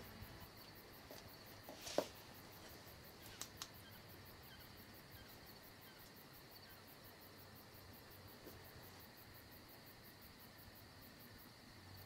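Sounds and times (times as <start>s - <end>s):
crickets chirping: 0.0s - 12.0s
quick clicks: 3.3s - 3.8s.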